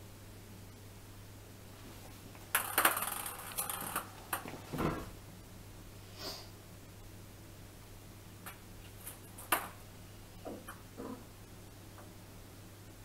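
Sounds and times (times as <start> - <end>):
ping pong ball clattering on tiles: 2.5 - 4.5.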